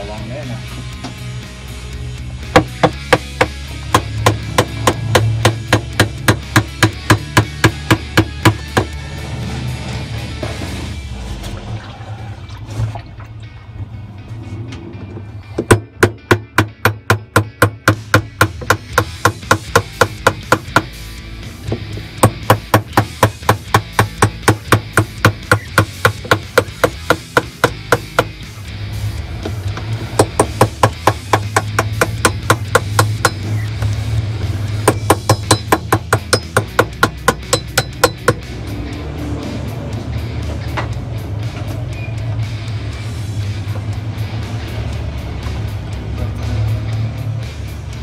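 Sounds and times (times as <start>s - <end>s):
hammer striking steel: 30.2s - 33.6s, 34.8s - 38.5s.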